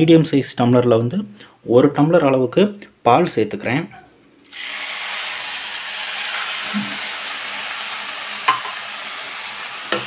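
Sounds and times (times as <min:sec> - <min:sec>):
milk sizzling in a hot pan: 0:04.5 - 0:10.0.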